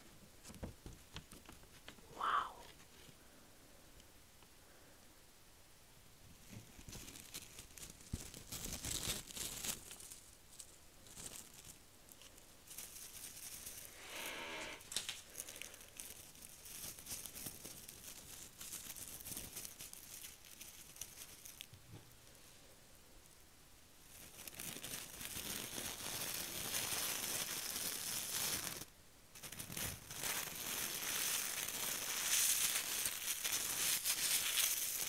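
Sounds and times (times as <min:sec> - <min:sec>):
gold leaf crinkling: 0:06.4 - 0:21.8, 0:24.0 - 0:35.0.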